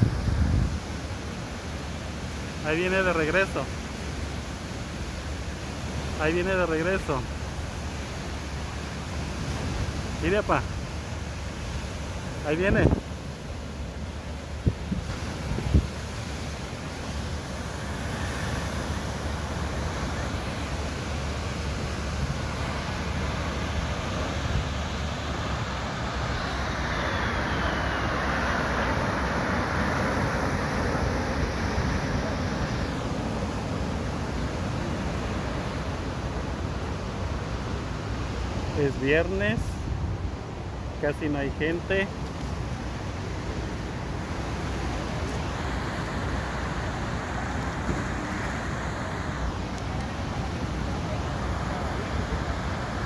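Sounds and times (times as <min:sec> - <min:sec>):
wind and surf rumble: 0:00.0 - 0:53.0
jet aircraft roar: 0:16.6 - 0:37.1
faint falling whine: 0:24.2 - 0:33.7.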